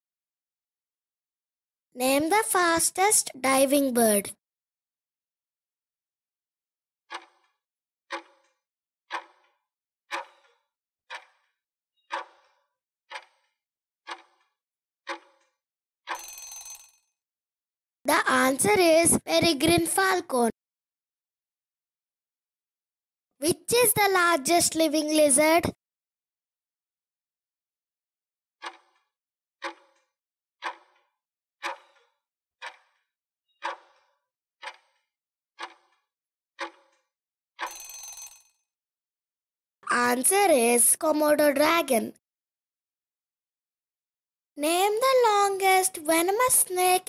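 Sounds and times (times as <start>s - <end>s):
clock ticks with short ring: 10.1s - 10.4s, 11.1s - 11.3s, 29.6s - 29.8s, 34.6s - 34.9s, 35.6s - 35.9s.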